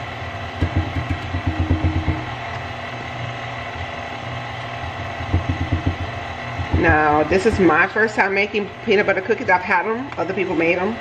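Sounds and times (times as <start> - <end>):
stand mixer running: 0.0 - 9.2
low thumps: 0.6 - 2.3, 5.2 - 7.8.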